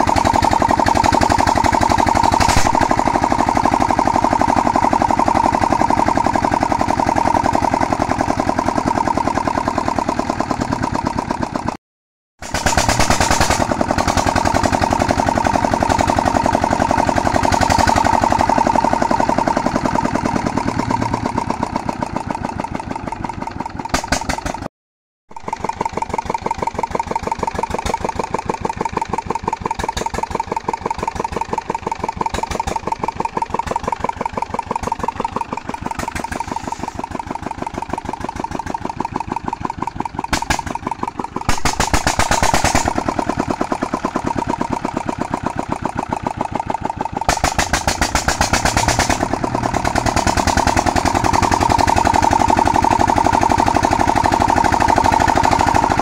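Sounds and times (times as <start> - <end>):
diesel engine chugging: 0.0 - 11.8, 12.4 - 24.7, 25.3 - 56.0.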